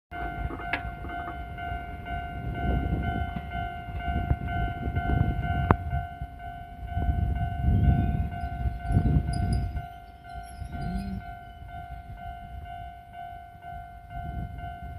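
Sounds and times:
level crossing bell ringing: 6.5 - 14.9.

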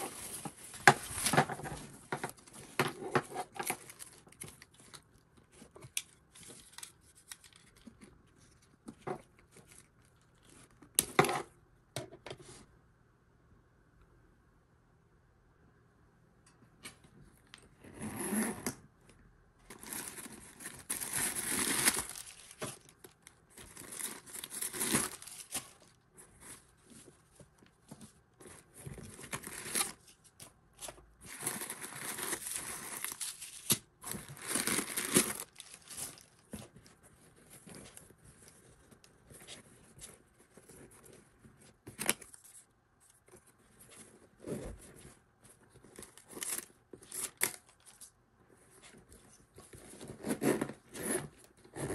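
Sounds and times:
paper rustling and crinkling: 0.0 - 11.0, 19.7 - 50.3.

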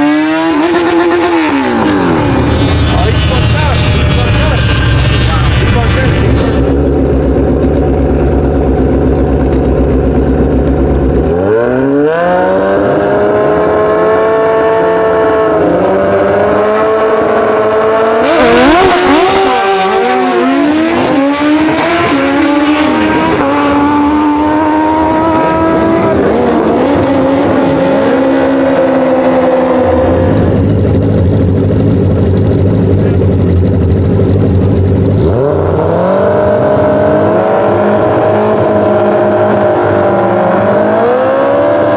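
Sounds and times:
motorbike revving: 0.0 - 41.9
motorbikes accelerating hard: 0.0 - 41.9
motorbikes idling: 2.2 - 11.6, 30.1 - 35.4.

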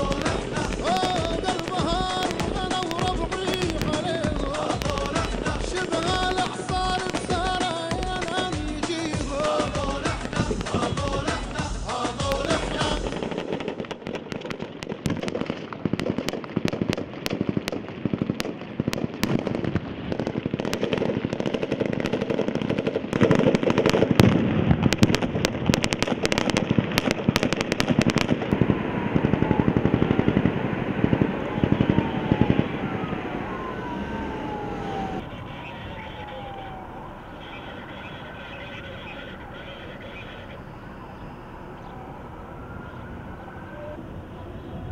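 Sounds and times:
siren wailing: 0.0 - 13.8, 25.8 - 44.9
rifle gunfire: 0.0 - 39.8.

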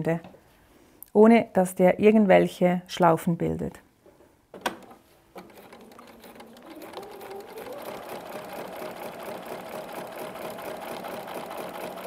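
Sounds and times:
sewing machine stitching: 4.8 - 12.0.

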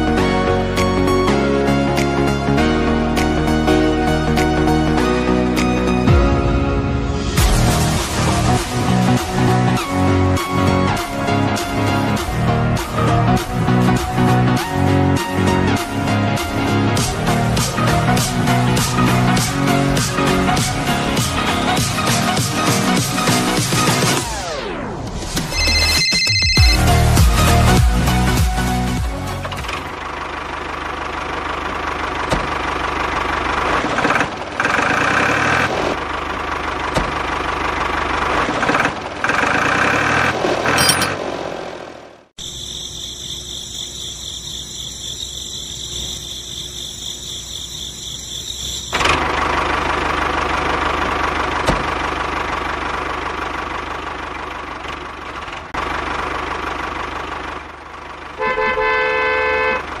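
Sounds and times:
tractor engine running: 0.0 - 24.4, 25.0 - 60.0
horn honking: 58.3 - 60.0.

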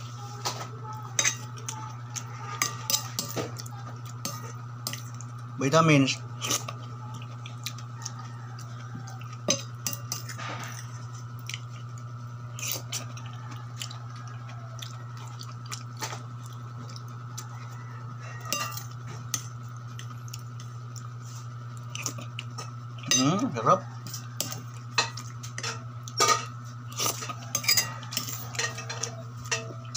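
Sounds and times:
chewing: 6.4 - 23.1, 23.9 - 29.9
cutlery clinking on plate: 18.4 - 19.4, 24.0 - 29.9.

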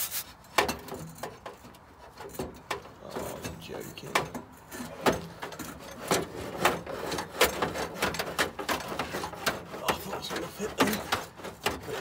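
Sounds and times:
sandpaper rubbing on metal pipe: 0.0 - 0.4, 5.8 - 12.0.

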